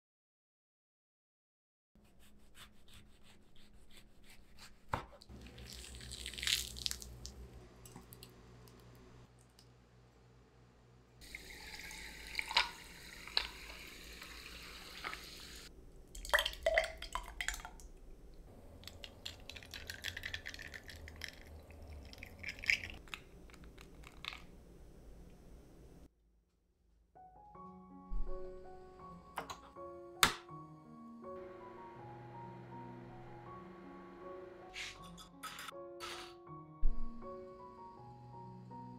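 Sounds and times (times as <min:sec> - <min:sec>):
liquid poured over ice: 0:05.4 - 0:07.3, 0:11.2 - 0:15.3, 0:18.8 - 0:23.0
ice clinking in glass: 0:11.6 - 0:13.6
soft background music: 0:27.2 - 0:38.9.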